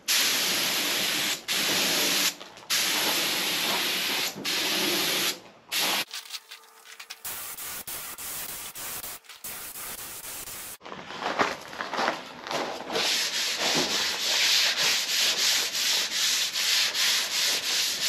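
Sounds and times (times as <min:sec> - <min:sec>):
spray gun hissing: 0:00.1 - 0:06.1, 0:07.2 - 0:10.8.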